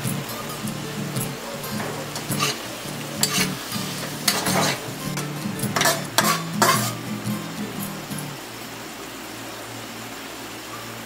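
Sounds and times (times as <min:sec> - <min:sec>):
food sizzling: 0:00.0 - 0:10.8
metal spatula scraping a wok: 0:02.0 - 0:07.1.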